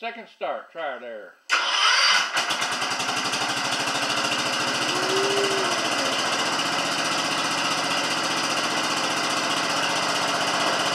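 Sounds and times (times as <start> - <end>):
tractor engine running: 1.5 - 10.9
short whine: 4.8 - 6.6.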